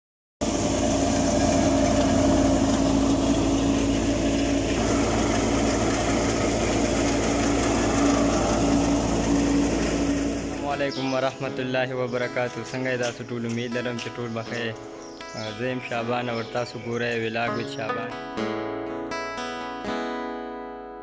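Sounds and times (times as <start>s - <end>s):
thresher machine droning: 0.4s - 11.6s.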